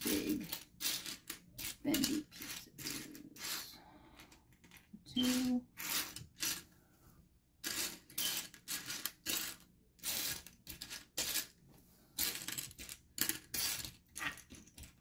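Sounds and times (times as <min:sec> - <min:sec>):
plastic bricks clattering: 0:00.0 - 0:03.6, 0:07.6 - 0:11.5, 0:12.2 - 0:15.0.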